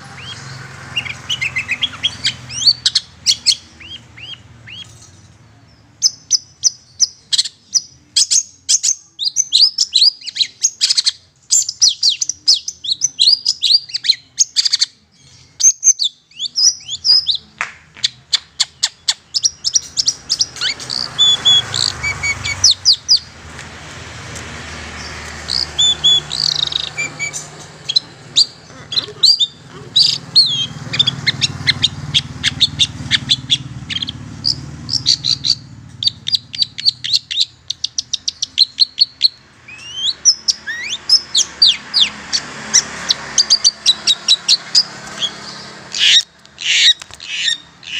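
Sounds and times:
shrike harsh chattering calls: 0:00.0 - 0:05.3, 0:18.6 - 0:47.9
motorbike engine passing: 0:00.0 - 0:06.0, 0:19.4 - 0:47.9.

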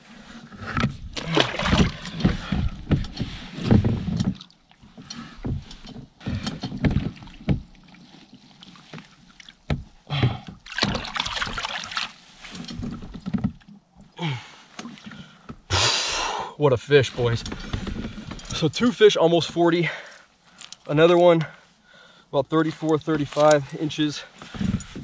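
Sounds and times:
water splashing: 0:01.2 - 0:02.6, 0:10.6 - 0:12.2.

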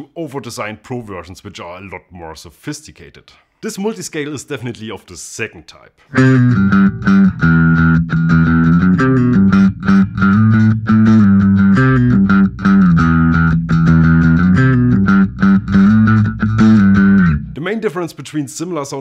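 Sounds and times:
bass guitar riff plucked: 0:06.1 - 0:17.6.

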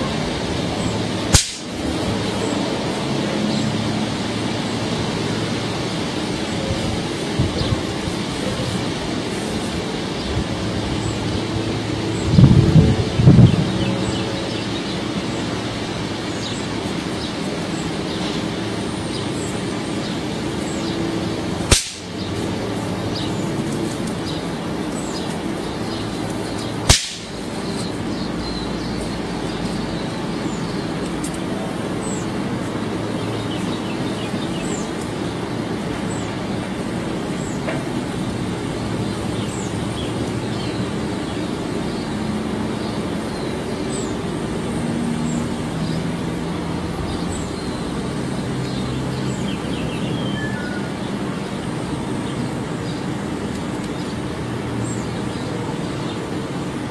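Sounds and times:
steady hiss and low hum: 0:00.0 - 0:56.9
electric spark snaps: 0:01.3 - 0:02.0, 0:21.6 - 0:24.3, 0:26.2 - 0:28.0.

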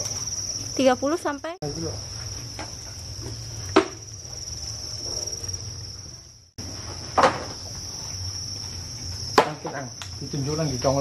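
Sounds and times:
crickets chirping: 0:00.0 - 0:11.0
knock: 0:07.2 - 0:07.6.

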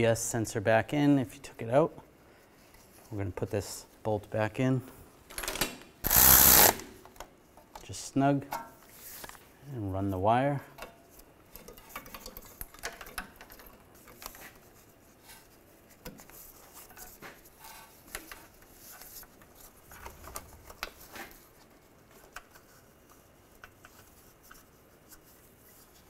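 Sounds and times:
gloved hands handling wire: 0:10.8 - 0:26.0.

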